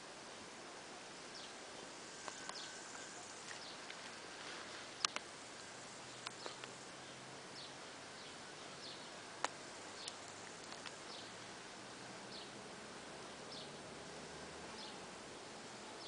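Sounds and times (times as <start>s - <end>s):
small bird chirping: 1.3s - 4.2s, 5.0s - 11.5s, 13.2s - 13.8s, 14.7s - 15.1s
soft ticks: 5.0s - 5.3s, 9.4s - 11.0s.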